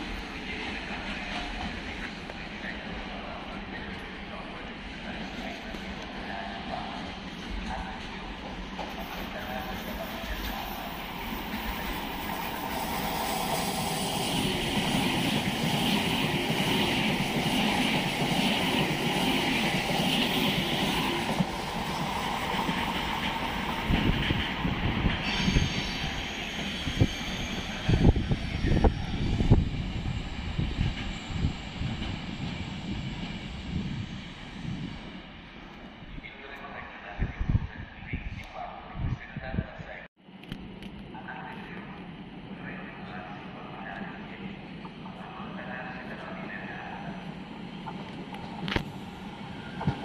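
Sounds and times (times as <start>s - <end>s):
high-speed train passing: 0.0s - 50.0s
low thumps and gusts: 21.3s - 25.2s, 28.0s - 35.2s.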